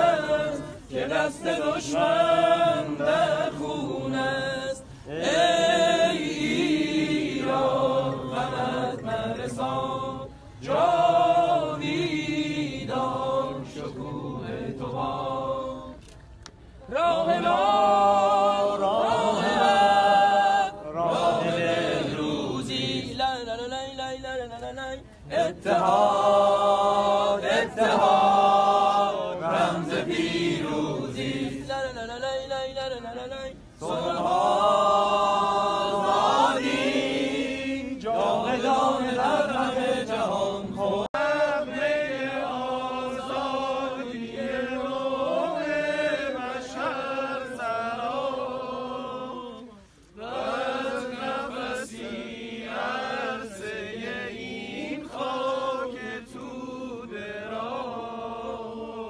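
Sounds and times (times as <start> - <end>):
crowd singing in unison: 0.0 - 59.0.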